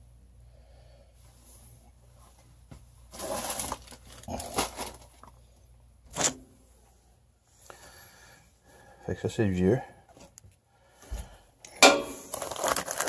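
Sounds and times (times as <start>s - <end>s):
hands rustling and scraping wires: 2.1s - 5.5s, 10.1s - 13.0s.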